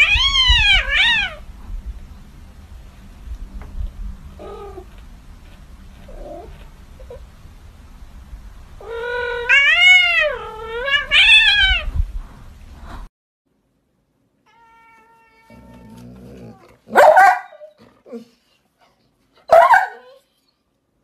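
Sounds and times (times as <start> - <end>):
kitten meowing: 0.0 - 1.4, 14.5 - 16.0.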